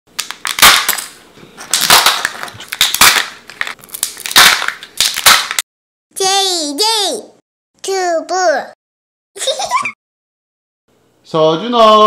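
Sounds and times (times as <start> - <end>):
foil wrapper crinkling and tearing: 0.2 - 5.6
plastic capsule snapping open: 1.7 - 5.6.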